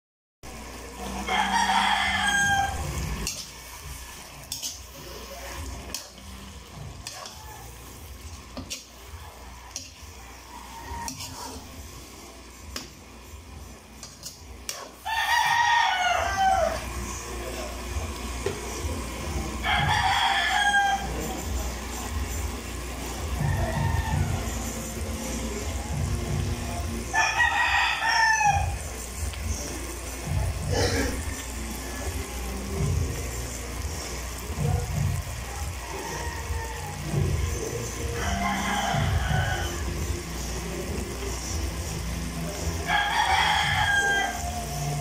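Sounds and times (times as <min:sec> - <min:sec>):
metal spatula scraping wok: 0:00.7 - 0:17.8
rooster crowing: 0:01.0 - 0:04.0, 0:08.6 - 0:11.7, 0:14.8 - 0:17.2, 0:19.3 - 0:21.8, 0:23.1 - 0:26.4, 0:27.1 - 0:29.6, 0:34.6 - 0:41.4, 0:42.4 - 0:45.0.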